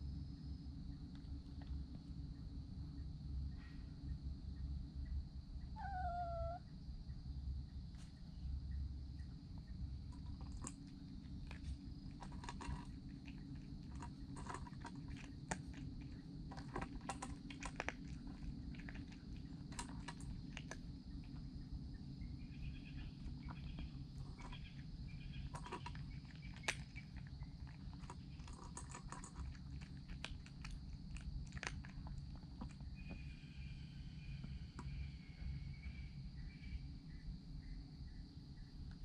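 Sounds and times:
cat crunching food: 0:10.1 - 0:21.6, 0:23.2 - 0:33.3.

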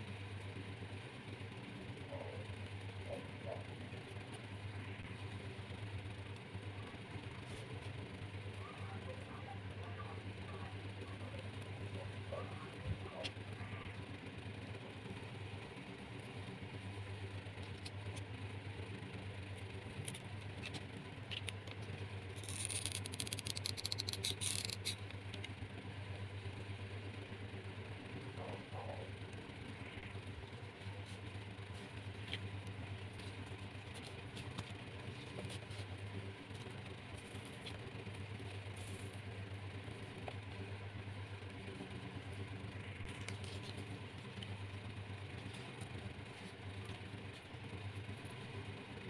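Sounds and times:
steady low hum: 0:00.0 - 0:49.0
hands scraping rope craft: 0:22.4 - 0:25.5, 0:33.1 - 0:37.9.

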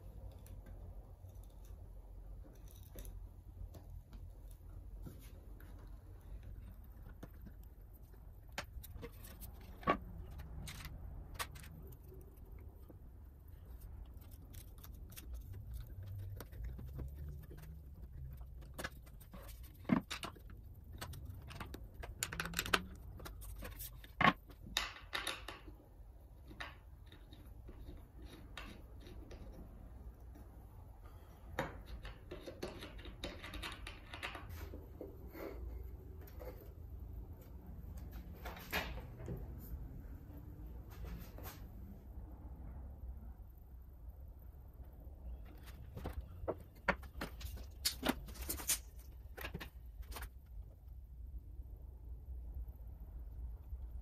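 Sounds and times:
low steady hum: 0:00.0 - 0:54.0
clicks and knocks of hardware: 0:14.1 - 0:29.7.

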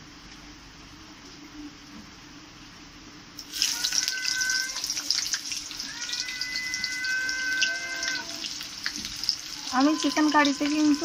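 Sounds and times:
onions sizzling in hot oil: 0:03.4 - 0:11.0.

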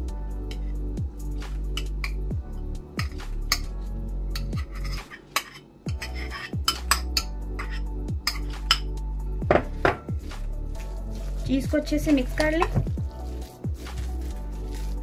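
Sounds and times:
background music: 0:00.0 - 0:15.0
metal spoon clinking against bowls: 0:03.0 - 0:03.7, 0:04.3 - 0:08.9
spoon scraping ceramic bowl: 0:04.3 - 0:08.9
spoon stirring filling: 0:04.3 - 0:08.9, 0:10.0 - 0:15.0.

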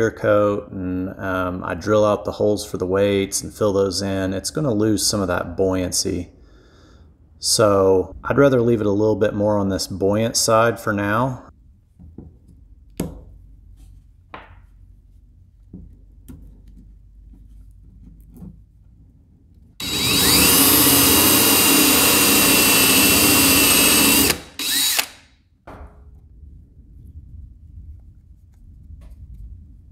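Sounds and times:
cordless drill boring: 0:19.8 - 0:25.3.

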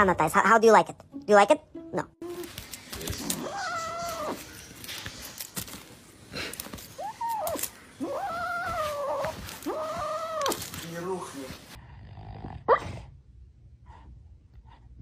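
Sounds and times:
wrapper clicks and rustles: 0:02.3 - 0:11.8
kitten yowling meows: 0:03.2 - 0:04.4, 0:07.0 - 0:10.7.

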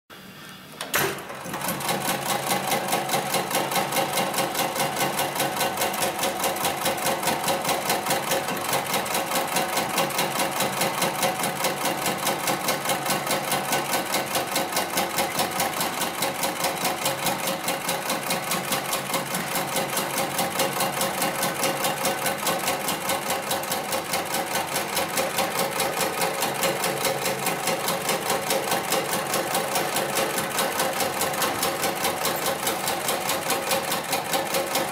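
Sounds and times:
sewing machine stitching: 0:00.9 - 0:34.9.

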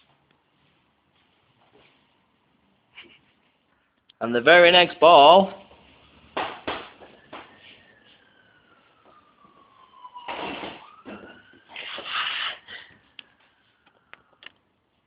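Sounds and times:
distant siren wailing: 0:05.9 - 0:14.8.

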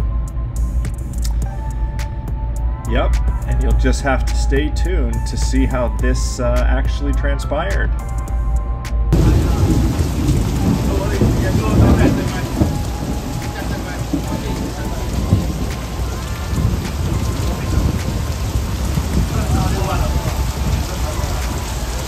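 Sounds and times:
heavy rain pouring: 0:09.1 - 0:22.0
thunder rumbling: 0:09.1 - 0:22.0.

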